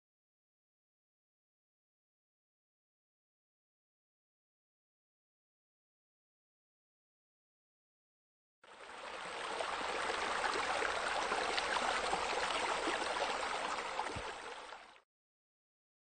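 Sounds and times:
running splashing water: 8.8 - 15.0.

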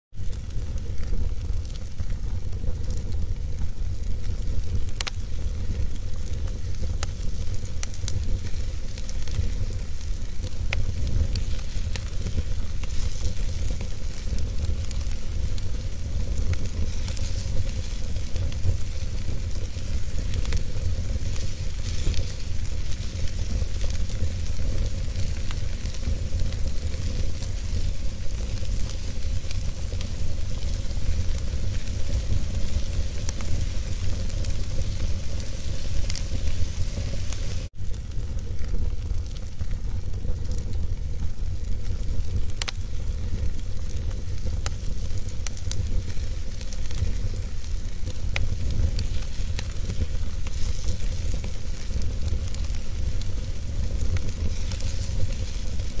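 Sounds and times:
fire hissing and rumbling: 0.1 - 56.0
wood crackling and popping: 0.1 - 56.0.

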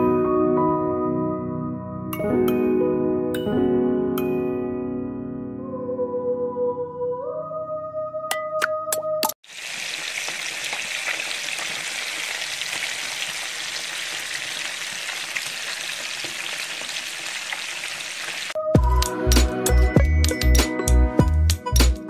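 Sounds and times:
fish frying in hot oil: 9.4 - 18.6.

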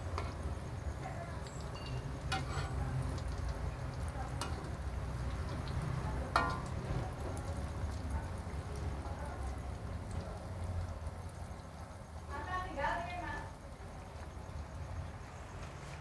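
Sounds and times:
food sizzling in oil: 0.0 - 16.0
metal spatula clinking on wok: 1.4 - 3.3, 6.3 - 6.8.

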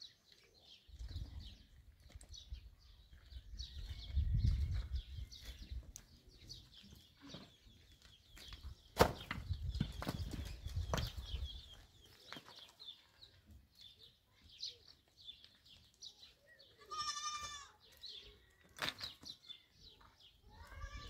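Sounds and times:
goat bleating: 16.8 - 17.8.

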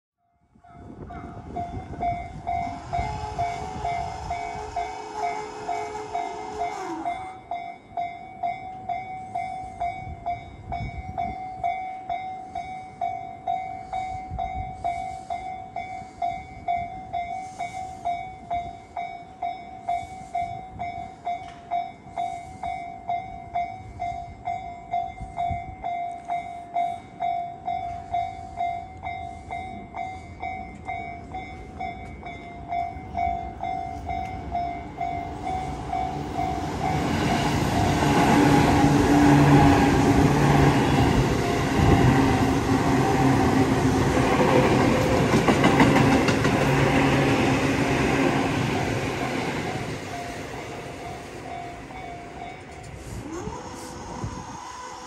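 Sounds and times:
level-crossing warning bell: 0.2 - 55.0
train rushing past: 1.0 - 7.8, 27.8 - 55.0
train motor tone: 1.8 - 7.5, 32.9 - 55.0.

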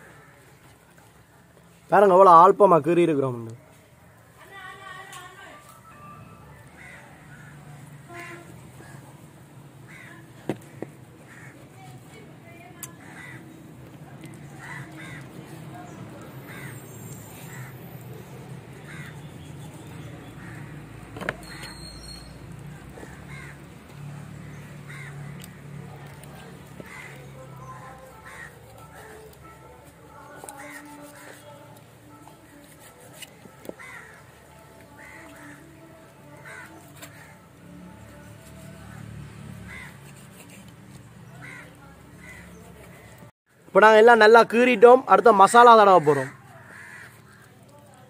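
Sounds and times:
crows cawing: 6.7 - 9.1, 9.9 - 11.9, 12.9 - 13.6, 14.3 - 19.4, 20.3 - 22.0, 22.7 - 29.4, 30.2 - 31.6, 33.7 - 37.4, 39.6 - 40.0, 41.3 - 43.2, 45.8 - 47.8.

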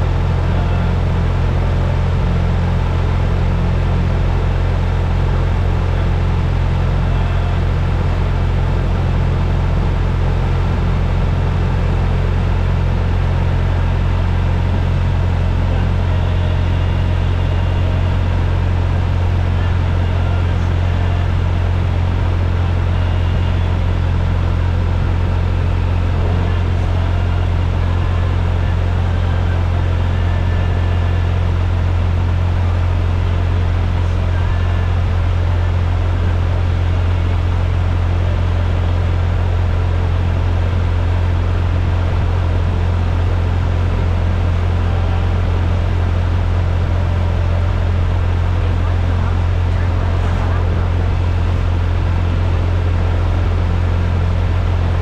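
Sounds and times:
steady low rumble: 0.0 - 55.0.

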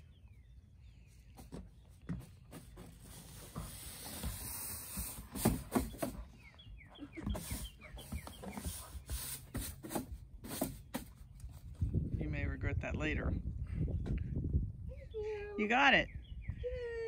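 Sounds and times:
bird chirping: 0.0 - 3.0, 4.2 - 9.6, 14.9 - 16.9
broom scraping on wooden deck: 1.4 - 6.4, 7.1 - 11.3.

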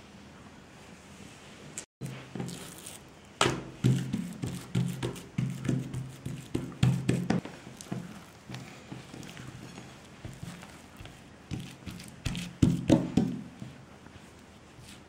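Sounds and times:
hands slapping dough on wood: 3.4 - 9.1, 10.2 - 13.8.

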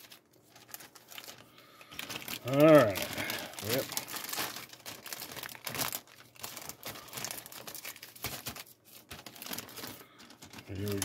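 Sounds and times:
plastic bag crinkling: 0.0 - 11.0.

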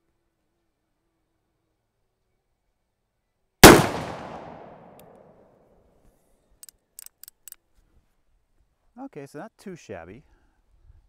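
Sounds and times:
revolver gunshot: 3.6 - 5.4.

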